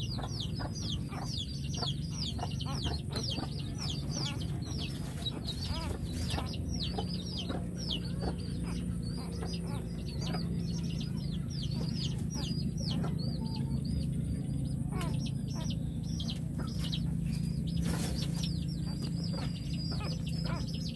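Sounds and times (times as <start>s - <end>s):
birds chirping rapidly: 0.0s - 20.9s
low steady hum: 0.0s - 20.9s.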